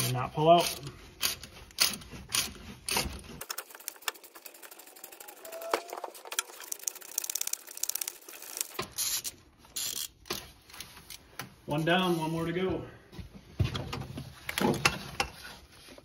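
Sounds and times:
ratchet wrench clicking: 6.4 - 10.2.

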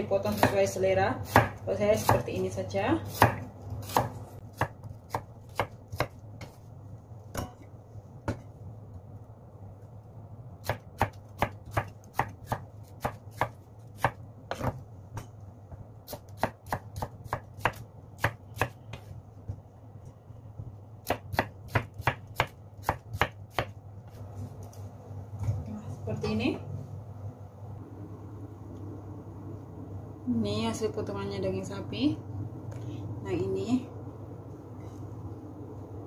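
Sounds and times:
knife chopping on wooden board: 1.2 - 2.2, 3.1 - 6.6, 10.6 - 15.3, 21.0 - 23.8.

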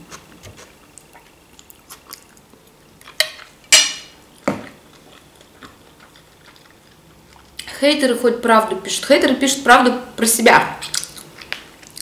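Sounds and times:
quiet chewing: 0.1 - 3.6, 4.6 - 7.7.

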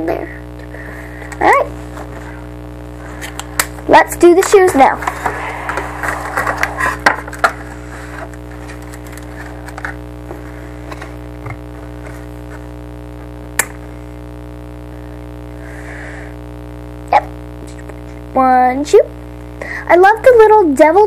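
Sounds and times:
low hum: 0.0 - 19.8
plastic packaging crinkling: 5.0 - 10.0.

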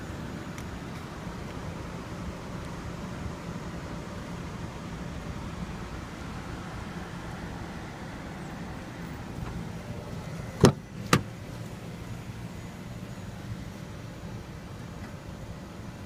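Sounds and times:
steady low hum: 0.0 - 16.0
car door latch clicks: 10.6 - 11.3.

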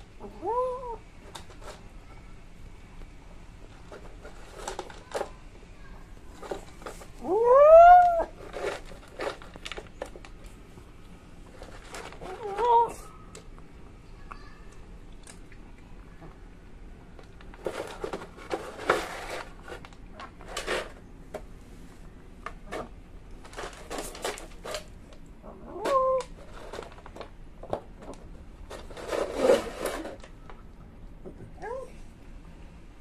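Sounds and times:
cat crunching dry food: 3.7 - 5.4, 8.0 - 13.6, 23.3 - 25.3, 25.9 - 30.6
cat meow: 7.2 - 8.4, 12.3 - 13.1.

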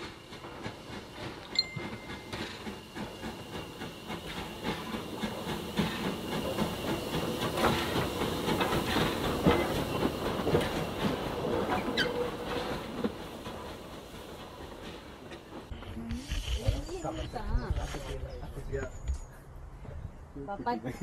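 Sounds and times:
steam locomotive wheels clanking: 0.0 - 16.0.

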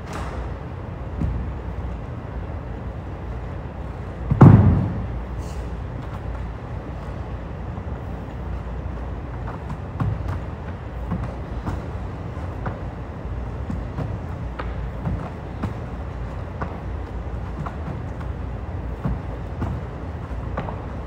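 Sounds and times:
steady low hum: 0.0 - 21.0
loud thud on wooden floor: 4.3 - 5.1.

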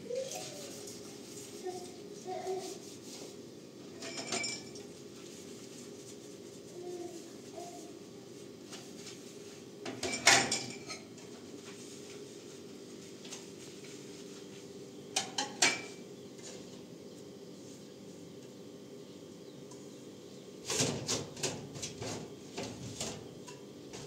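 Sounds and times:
dishes clinking and clattering: 4.0 - 4.9, 9.9 - 11.3, 15.2 - 16.0.

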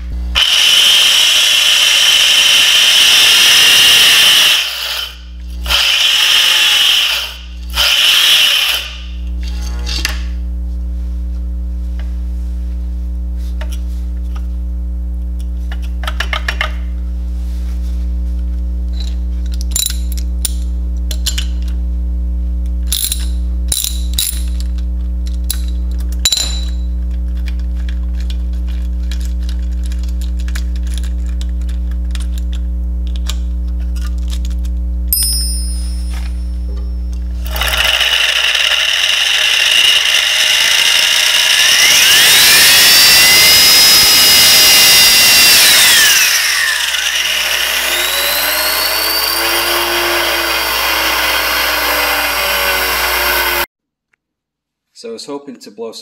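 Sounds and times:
low electrical hum: 5.1 - 6.0, 8.8 - 37.6
plastic gears whirring: 37.4 - 49.7.

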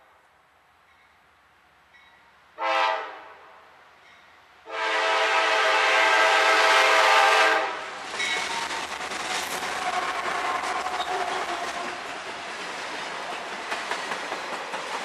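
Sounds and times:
passing train rumble and rail noise: 0.0 - 15.0
locomotive air horn blasts: 2.6 - 3.4, 4.7 - 7.8.

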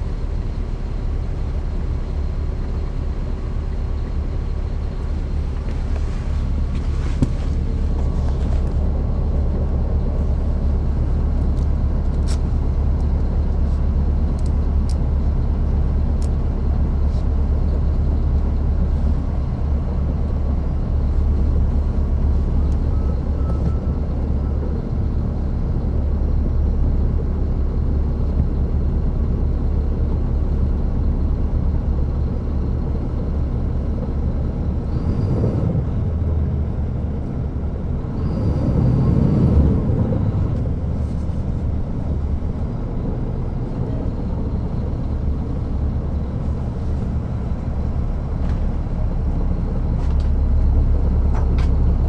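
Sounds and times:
bus diesel engine droning: 0.0 - 52.0.

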